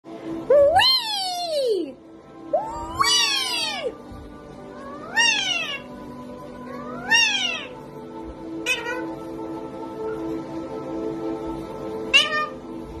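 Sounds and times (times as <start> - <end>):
parakeet mimicking cat meows: 0.5 - 4.0, 4.8 - 6.0, 6.6 - 7.8, 8.6 - 9.2, 12.1 - 12.7.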